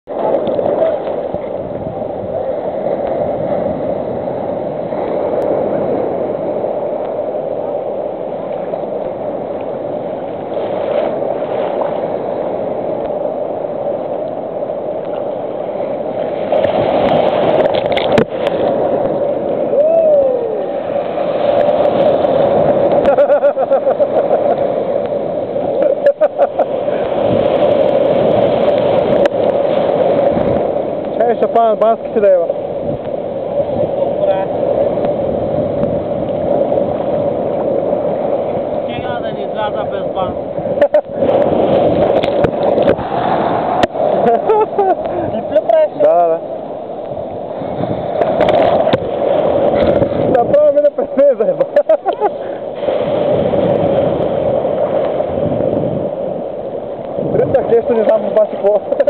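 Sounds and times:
sea surf washing: 0:00.0 - 0:59.0
water splashing against camera: 0:16.0 - 0:59.0.

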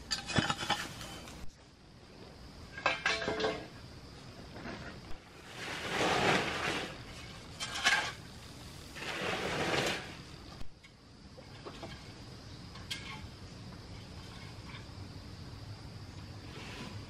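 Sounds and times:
hoe scraping dry dirt: 0:00.0 - 0:01.5, 0:04.5 - 0:10.4, 0:16.4 - 0:17.0.

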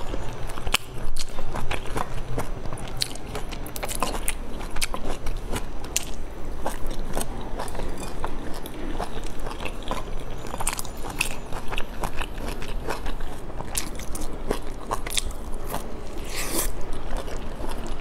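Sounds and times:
wet chewing with mouth clicks: 0:00.0 - 0:18.0.

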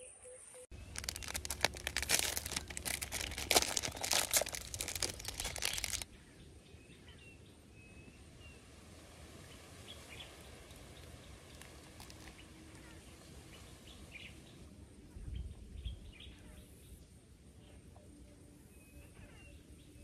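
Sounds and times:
plastic wrapper crinkling: 0:00.7 - 0:06.1, 0:11.5 - 0:12.4.

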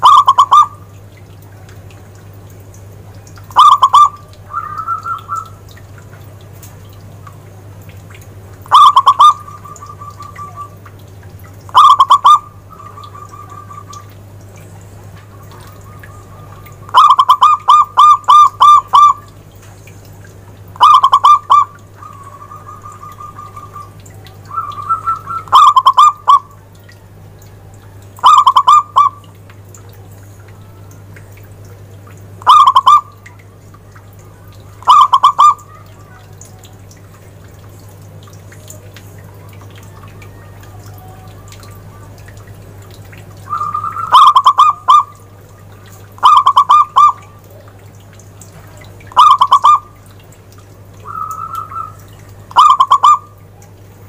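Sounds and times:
dove cooing: 0:00.0 - 0:00.8, 0:03.5 - 0:05.8, 0:08.7 - 0:10.8, 0:11.7 - 0:14.2, 0:15.2 - 0:19.3, 0:20.8 - 0:26.6, 0:28.2 - 0:29.2, 0:32.4 - 0:33.4, 0:34.7 - 0:36.7, 0:43.4 - 0:47.7, 0:49.1 - 0:50.0, 0:51.0 - 0:53.4.

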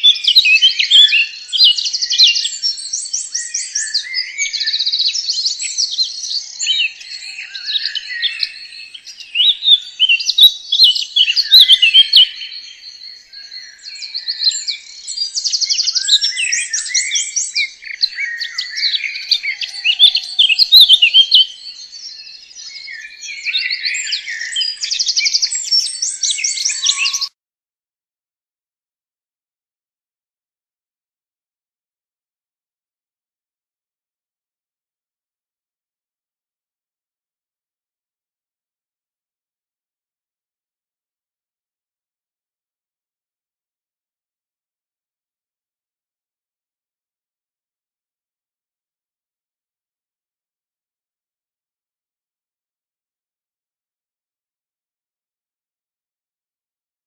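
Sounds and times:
birdsong with chirps and trills: 0:00.0 - 0:27.4.

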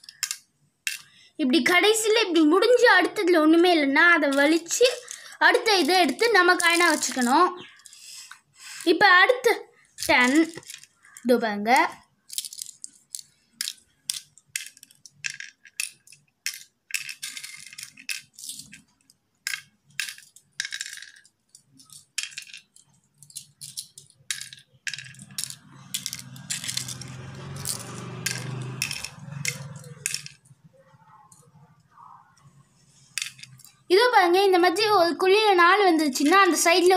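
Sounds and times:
shells rattling in hand: 0:04.3 - 0:08.0, 0:10.0 - 0:11.2, 0:12.3 - 0:30.5, 0:33.2 - 0:33.8
shells clicking into wooden board: 0:19.4 - 0:30.5.

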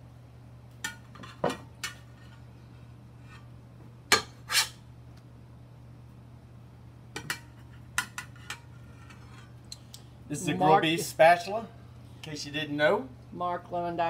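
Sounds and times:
low steady hum: 0:00.0 - 0:14.0
metal spatula clacking on ceramic plates: 0:07.2 - 0:09.2.

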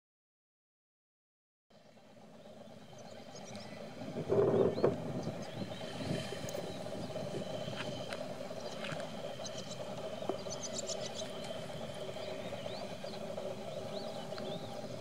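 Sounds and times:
chorus of calling animals: 0:02.6 - 0:15.0.

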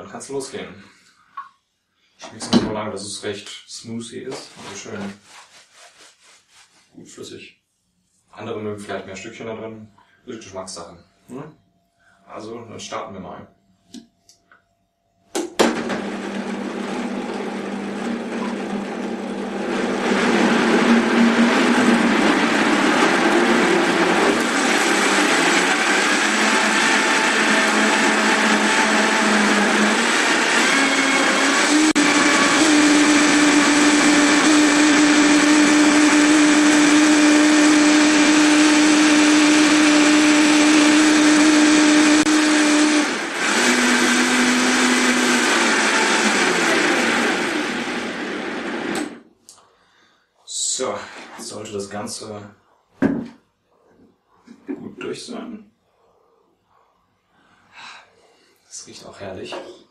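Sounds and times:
blender blending fruit: 0:15.4 - 0:49.2.

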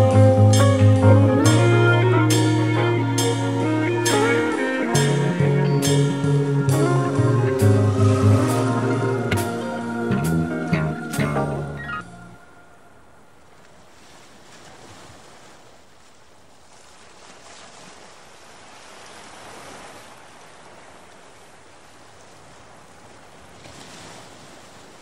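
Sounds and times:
faint rushing noise: 0:01.4 - 0:14.4.

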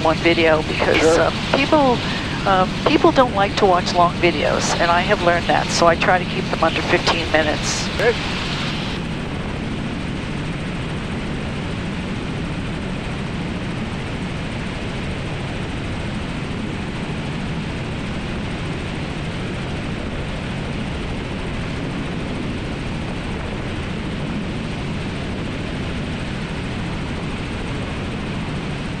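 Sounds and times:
helicopter rotor and engine noise: 0:00.0 - 0:29.0.

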